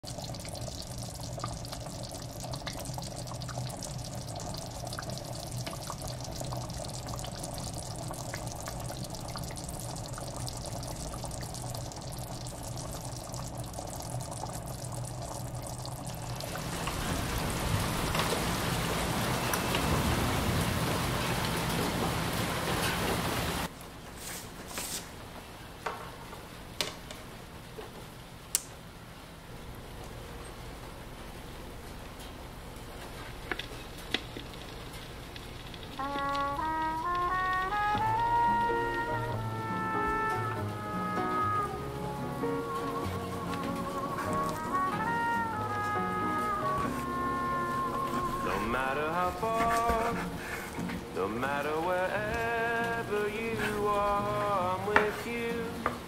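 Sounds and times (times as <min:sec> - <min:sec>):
water rushing: 0:00.0 - 0:23.7, 0:35.6 - 0:56.0.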